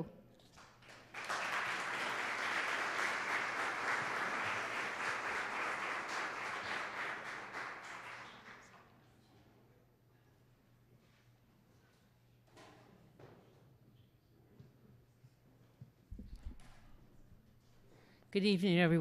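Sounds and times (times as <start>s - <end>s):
audience applauding: 0.6s - 8.8s.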